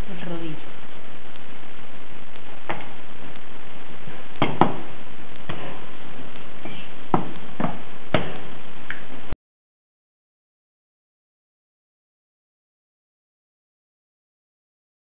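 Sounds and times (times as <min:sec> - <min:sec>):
steady loud hiss: 0:00.0 - 0:09.4
knocks of pin and dough: 0:04.4 - 0:04.8.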